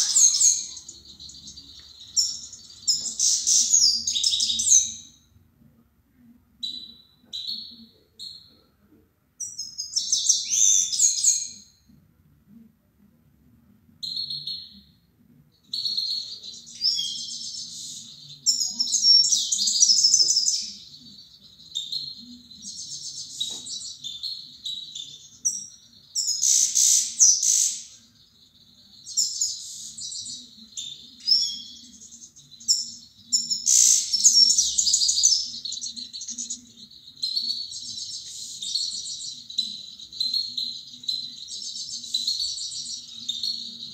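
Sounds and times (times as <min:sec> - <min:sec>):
songbird twittering: 0:00.0 - 0:05.1, 0:15.7 - 0:43.9.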